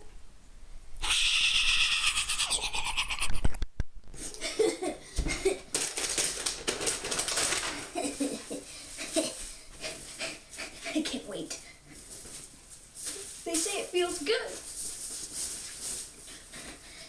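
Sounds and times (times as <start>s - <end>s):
child giggling: 1.8s - 3.4s, 4.3s - 5.7s, 7.9s - 9.5s
costume and plastic bag rustling: 5.3s - 9.6s, 12.0s - 16.5s.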